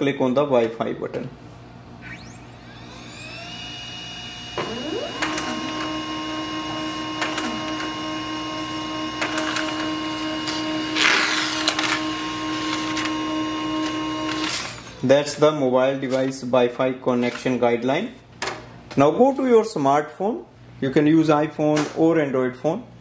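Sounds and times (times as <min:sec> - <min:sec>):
printer mechanical hum: 0:01.8 - 0:16.4
printer spinning up whine: 0:02.0 - 0:15.3
rush of printer noise: 0:04.6 - 0:15.0
printer clicks: 0:07.2 - 0:07.9.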